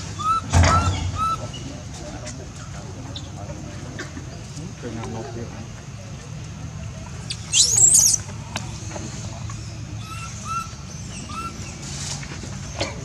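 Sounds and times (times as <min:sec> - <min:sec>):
baby monkey squealing cry: 0:07.3 - 0:08.2
faint short chirps: 0:07.3 - 0:08.2.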